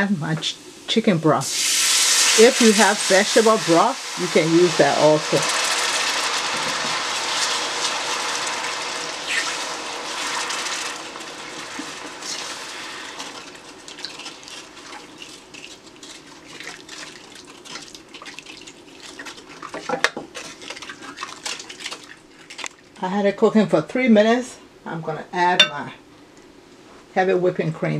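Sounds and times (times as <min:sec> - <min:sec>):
broth pouring into a pot: 0:00.7 - 0:22.9
wooden spoon stirring: 0:02.4 - 0:23.0
spoon scraping and tapping pot: 0:25.6 - 0:25.8.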